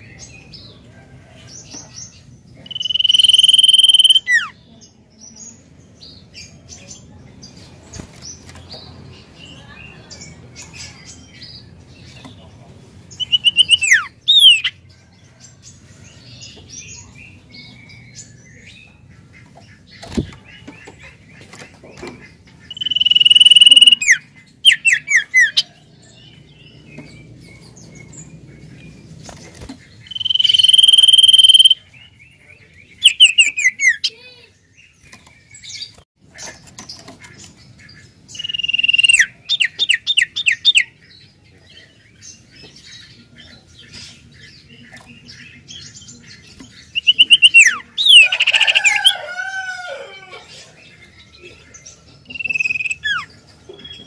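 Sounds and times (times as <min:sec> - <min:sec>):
bird singing whistles: 0:02.7 - 0:04.5, 0:22.7 - 0:24.8, 0:30.1 - 0:31.8, 0:38.4 - 0:39.3, 0:47.0 - 0:48.2.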